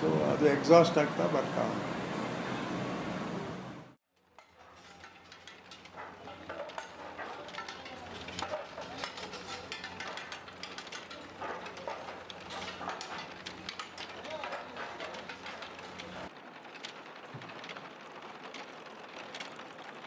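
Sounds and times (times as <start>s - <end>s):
roof tiles clinking: 4.2s - 18.5s.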